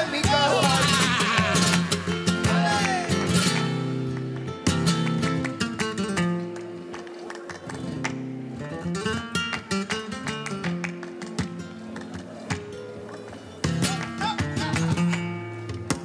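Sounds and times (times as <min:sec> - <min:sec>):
person singing: 0:00.0 - 0:03.4
flamenco acoustic guitar: 0:00.0 - 0:16.0
hand clapping: 0:00.2 - 0:16.0.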